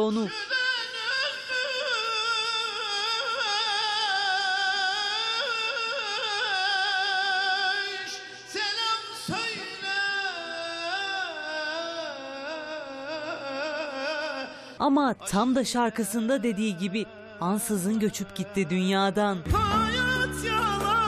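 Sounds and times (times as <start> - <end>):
man singing folk song: 15.3 - 21.0.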